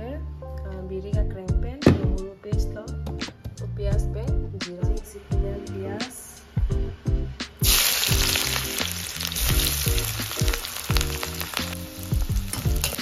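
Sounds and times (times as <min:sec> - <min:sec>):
onions sizzling in hot oil: 0:07.6 - 0:13.0.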